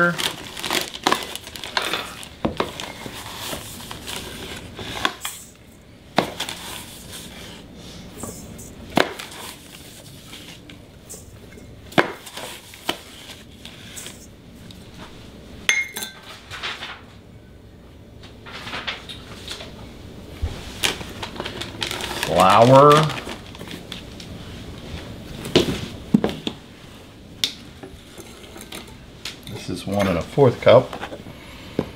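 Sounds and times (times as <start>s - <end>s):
cup clinking against bowl: 15.7s - 16.2s.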